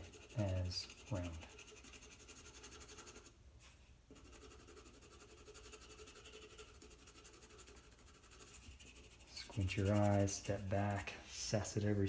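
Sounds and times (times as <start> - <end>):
pencil scratching on paper: 0.0 - 3.3, 4.1 - 11.1.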